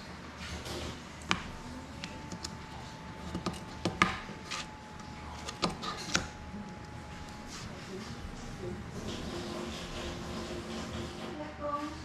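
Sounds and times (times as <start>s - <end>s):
tools clicking and tapping on desk: 3.2s - 4.7s.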